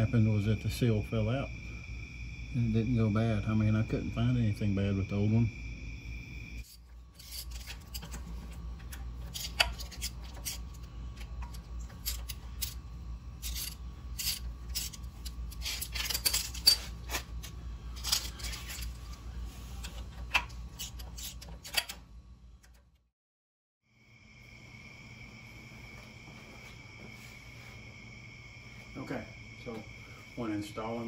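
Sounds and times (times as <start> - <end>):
faint low hum: 0.0 - 23.0, 24.0 - 31.0
hand tools clicking and scraping: 6.6 - 22.8.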